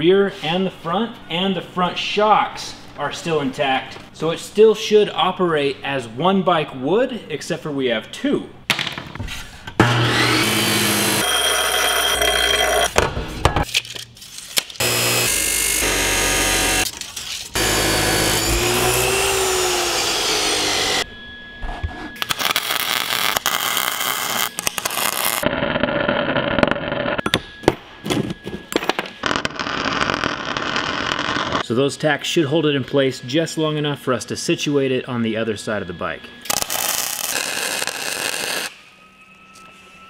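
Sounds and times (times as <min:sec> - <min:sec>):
bench grinder grinding steel: 0:09.8 - 0:12.9, 0:14.8 - 0:16.9, 0:17.5 - 0:21.0
arc welder crackling: 0:14.8 - 0:21.1, 0:22.2 - 0:25.5, 0:29.2 - 0:31.6, 0:36.5 - 0:38.8.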